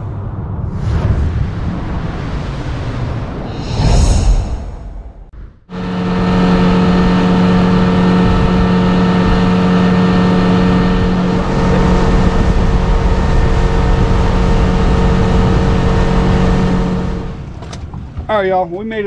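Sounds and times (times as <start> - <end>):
wind and water rushing: 0.0 - 5.3
outboard motor running: 5.7 - 18.3.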